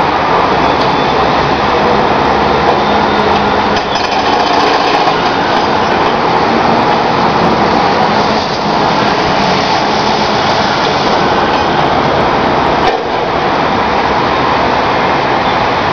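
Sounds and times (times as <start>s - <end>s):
machine engine: 1.4s - 12.2s
hydraulic breaker hammering asphalt: 3.7s - 5.7s.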